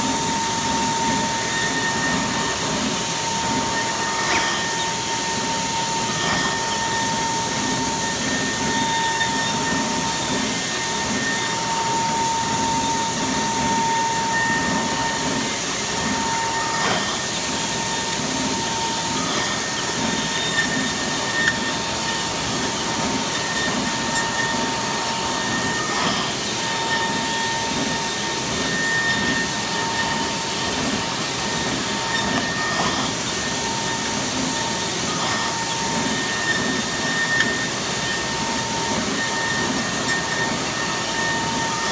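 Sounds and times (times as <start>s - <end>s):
milling spindle whine: 0.0s - 41.9s.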